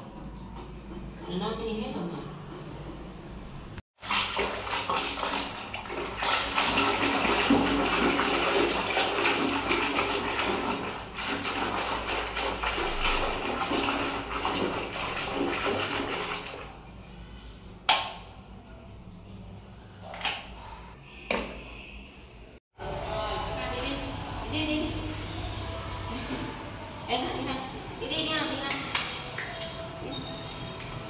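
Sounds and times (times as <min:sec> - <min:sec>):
water sloshing in a basin: 0:00.0 - 0:02.9, 0:04.0 - 0:21.0.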